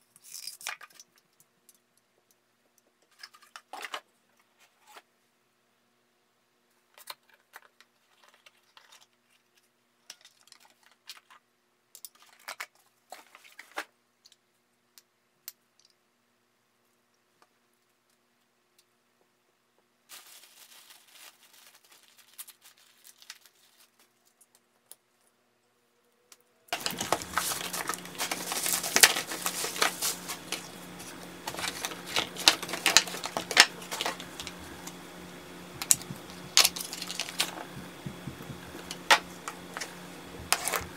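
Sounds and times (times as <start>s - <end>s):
plastic packaging crinkling: 20.1s - 24.4s, 26.7s - 40.9s
steady low hum: 25.5s - 40.9s.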